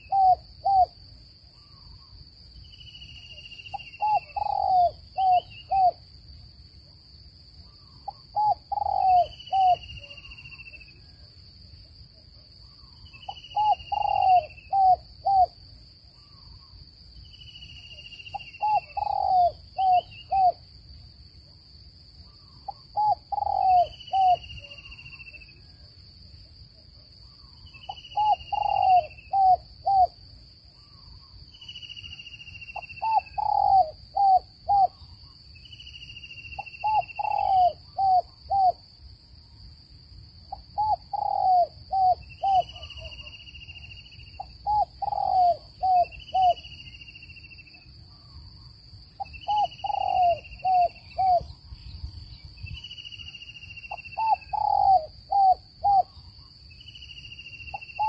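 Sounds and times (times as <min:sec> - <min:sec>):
dove cooing: 0:00.0 - 0:00.9, 0:03.7 - 0:06.0, 0:08.1 - 0:10.2, 0:13.2 - 0:15.6, 0:18.3 - 0:20.6, 0:22.4 - 0:24.9, 0:27.8 - 0:30.2, 0:32.8 - 0:35.0, 0:36.6 - 0:38.8, 0:40.5 - 0:43.3, 0:44.4 - 0:46.6, 0:49.2 - 0:51.6, 0:53.9 - 0:56.2.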